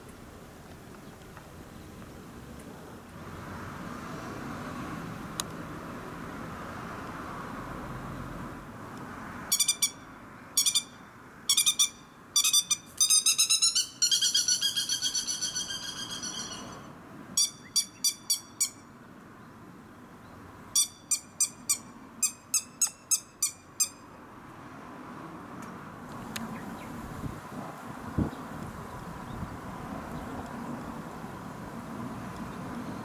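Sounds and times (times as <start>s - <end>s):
lapwing calling: 9.5s - 18.9s, 20.8s - 24.0s.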